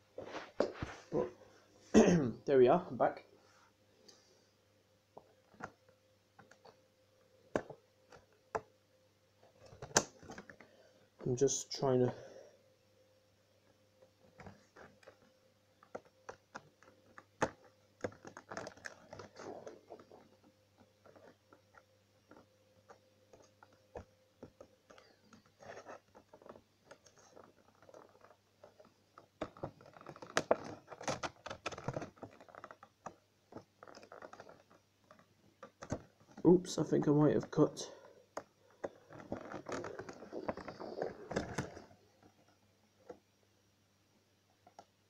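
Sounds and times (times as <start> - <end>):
plastic and card crinkling: 14.3 - 43.2.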